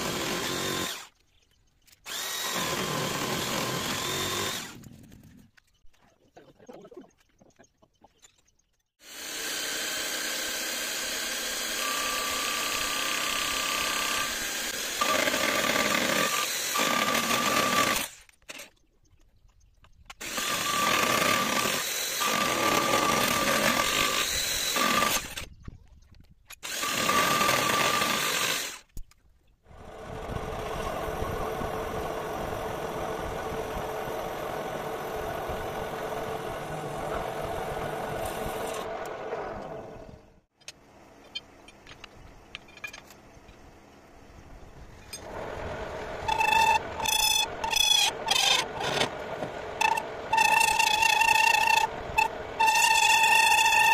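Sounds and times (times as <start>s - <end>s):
drill cutting metal with high whine: 0.0s - 1.1s, 2.1s - 4.8s, 9.0s - 18.2s, 20.2s - 25.4s, 26.6s - 28.8s, 46.2s - 49.1s, 49.8s - 53.9s.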